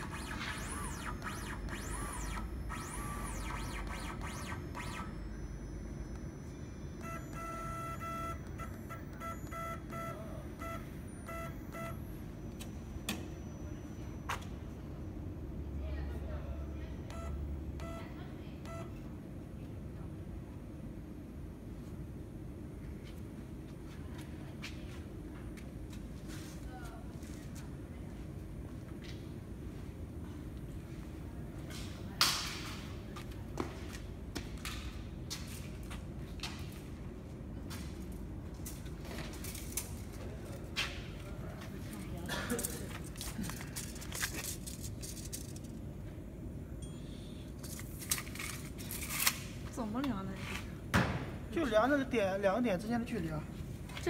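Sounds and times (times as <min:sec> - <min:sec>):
whine rising and falling in pitch: 0:00.0 - 0:14.2
short electronic beeps: 0:00.0 - 0:14.7, 0:17.0 - 0:19.0
low machine hum: 0:00.0 - 0:54.0.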